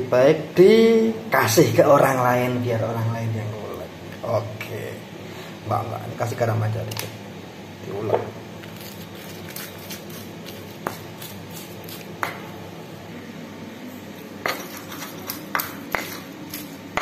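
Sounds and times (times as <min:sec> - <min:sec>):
stone pestle knocking in mortar: 0:12.2 - 0:12.5, 0:14.4 - 0:17.0.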